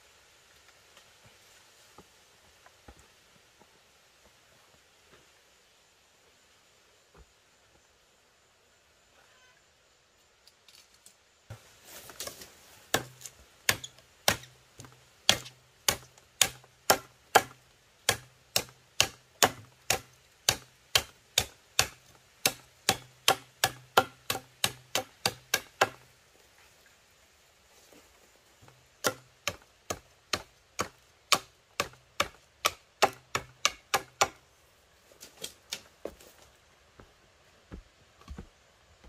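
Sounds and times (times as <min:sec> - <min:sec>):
machete chopping bamboo: 0:12.1 - 0:26.0, 0:29.0 - 0:34.4.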